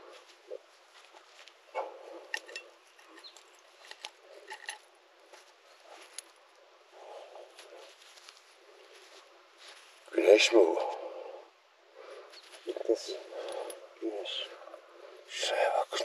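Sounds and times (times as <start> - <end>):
soft handling noise: 0.0 - 10.9
coins and jewellery clinking: 2.2 - 4.8.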